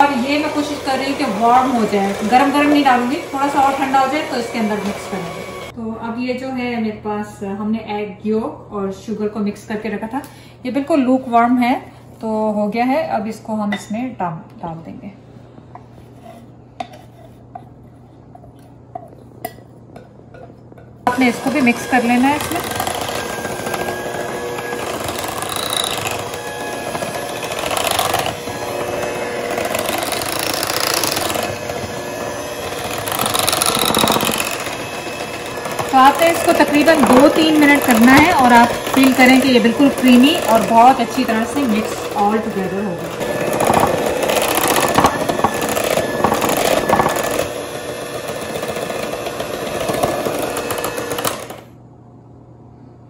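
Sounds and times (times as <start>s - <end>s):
electric hand mixer whisking: 0.0s - 5.8s, 21.1s - 51.7s.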